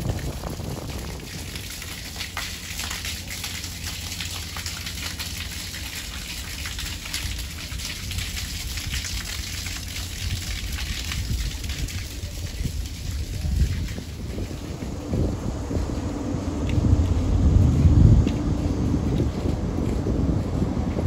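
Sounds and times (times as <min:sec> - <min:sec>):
water splashing from outlet: 0:00.0 - 0:21.0
low rumble: 0:09.7 - 0:21.0.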